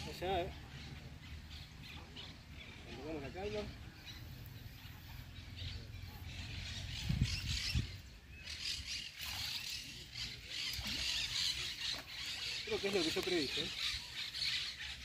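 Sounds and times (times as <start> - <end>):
birds chirping faintly: 0.0 - 15.0
low rumble on microphone: 3.7 - 8.6.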